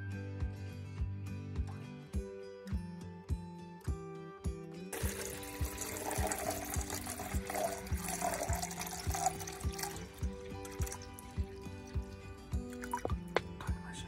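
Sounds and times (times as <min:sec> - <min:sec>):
background music with beat: 0:00.0 - 0:14.0
water pouring into metal pot: 0:04.9 - 0:13.4.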